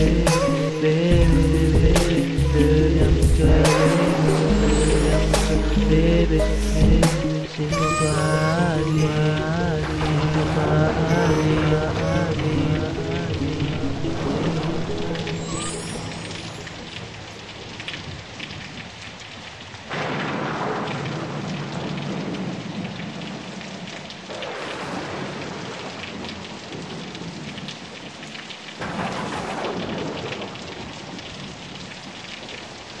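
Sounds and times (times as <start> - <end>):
steady rain: 0.0 - 33.0
thunder rolling: 8.3 - 13.0, 19.9 - 23.2, 24.3 - 27.5, 28.8 - 30.9.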